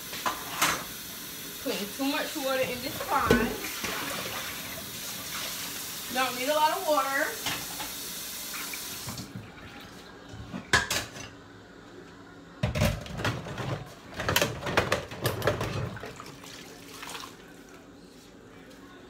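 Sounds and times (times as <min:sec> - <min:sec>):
kitchenware clattering: 0:02.5 - 0:04.4, 0:10.5 - 0:11.4, 0:12.6 - 0:16.2.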